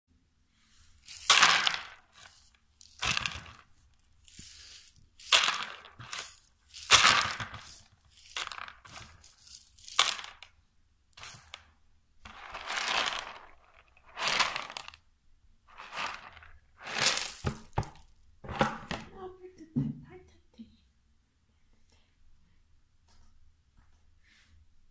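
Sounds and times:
dried beans rattling: 0:00.8 - 0:15.0, 0:15.7 - 0:18.2.

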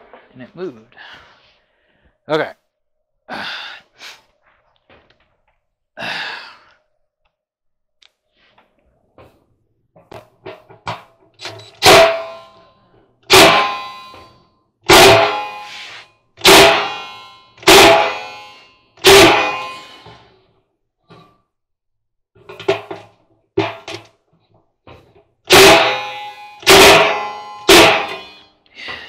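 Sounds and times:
loud metal clangs: 0:10.3 - 0:20.3, 0:22.4 - 0:24.1, 0:25.5 - 0:29.0.

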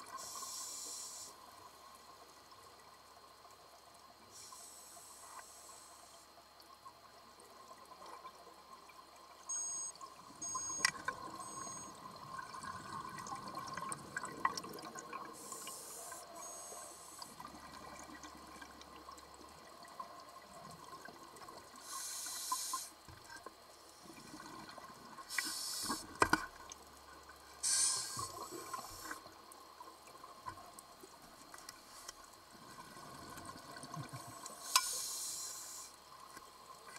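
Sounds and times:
exhaled bubbles hissing underwater: 0:00.0 - 0:01.4, 0:09.5 - 0:23.1, 0:23.9 - 0:26.2, 0:27.6 - 0:29.5, 0:31.9 - 0:36.0
faint steady hum: 0:00.0 - 0:36.9.

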